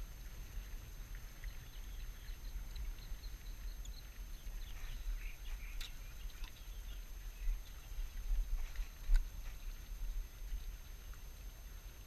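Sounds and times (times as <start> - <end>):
faint high ticks and chirps: 0.0 - 12.0
wind buffeting microphone: 1.4 - 11.1.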